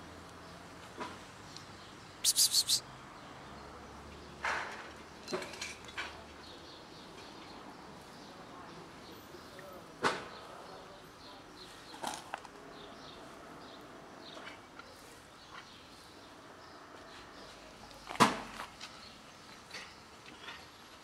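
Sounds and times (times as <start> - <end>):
faint bird chirps: 2.2 - 2.8.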